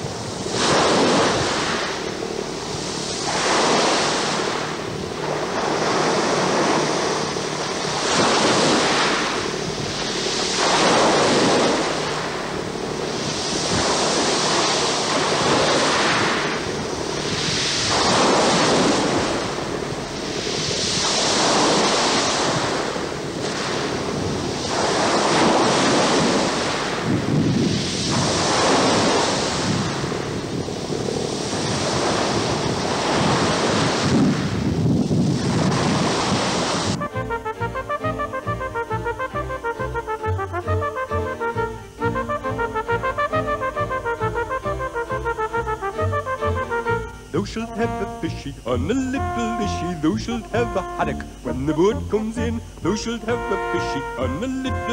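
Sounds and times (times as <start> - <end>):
sea water splashing: 0.0 - 37.4
wind buffeting microphone: 0.0 - 37.6.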